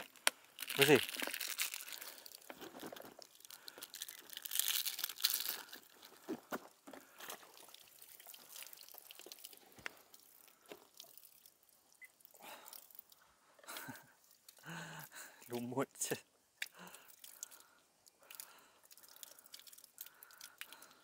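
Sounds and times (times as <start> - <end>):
plastic bottle crinkling: 0.0 - 11.5.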